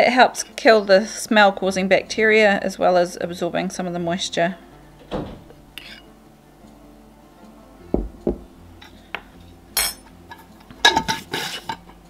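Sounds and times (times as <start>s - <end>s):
spoon scraping bowl: 5.8s - 6.1s, 10.4s - 11.8s
metal spoon clinking on ceramic bowl: 9.8s - 10.1s.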